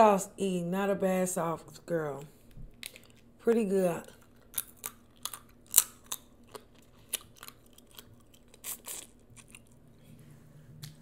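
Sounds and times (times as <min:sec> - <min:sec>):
shells cracking and crunching: 0:02.7 - 0:03.3, 0:04.1 - 0:09.8
chewing: 0:04.1 - 0:09.8.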